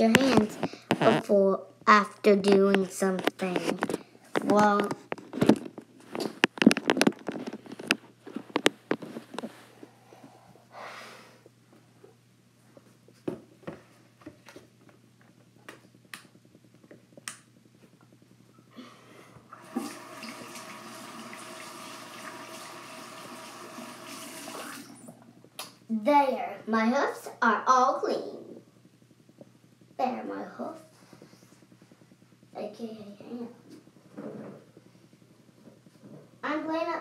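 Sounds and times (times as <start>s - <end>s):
water running into sink: 19.5s - 25.2s.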